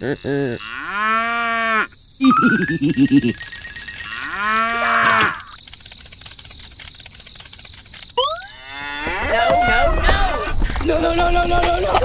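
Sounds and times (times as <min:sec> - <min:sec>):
wavering pitched calls: 0:02.2 - 0:05.6.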